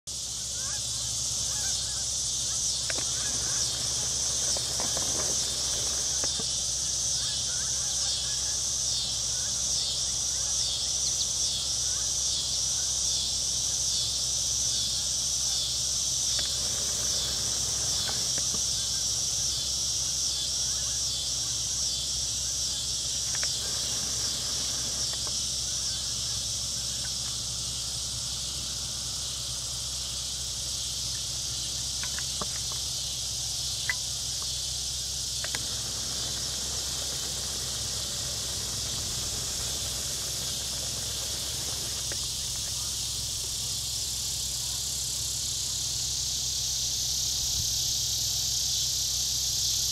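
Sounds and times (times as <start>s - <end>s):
insects chirring: 0.1s - 49.9s
low steady rumble: 13.5s - 45.8s
faint clicks: 35.4s - 42.3s.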